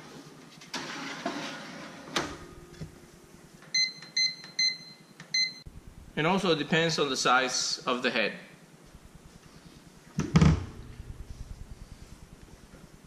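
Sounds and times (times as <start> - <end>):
short high-pitched beeps: 3.8 - 5.7.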